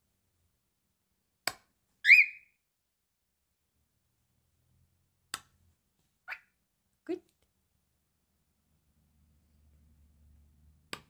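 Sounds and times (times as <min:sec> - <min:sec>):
cockatiel whistled chirp: 0:02.0 - 0:02.6.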